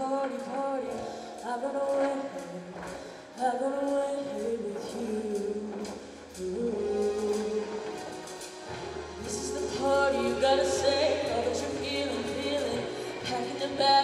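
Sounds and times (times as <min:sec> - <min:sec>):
live band playing: 0:04.9 - 0:14.0
choir singing in harmony: 0:05.8 - 0:14.0.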